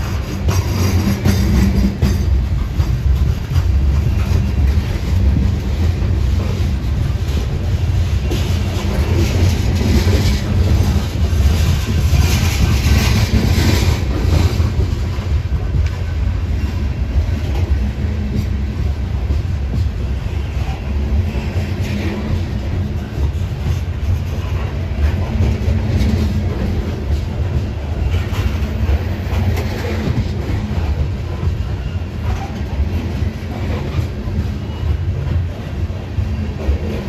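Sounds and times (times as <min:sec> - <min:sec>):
freight train wheels rumbling: 0:00.0 - 0:37.0.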